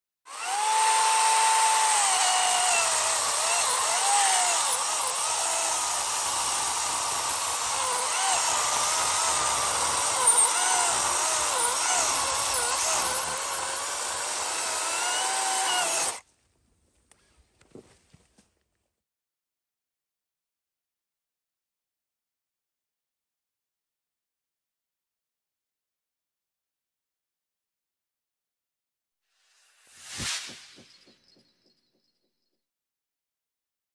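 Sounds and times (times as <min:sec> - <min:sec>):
chain cutting wood: 0:00.3 - 0:16.2
chainsaw motor whining: 0:00.3 - 0:16.2.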